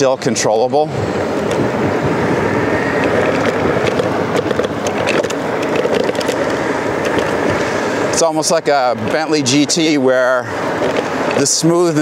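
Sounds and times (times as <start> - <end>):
wind rushing: 0.7 - 9.5
tyre noise on rough asphalt: 1.0 - 12.0.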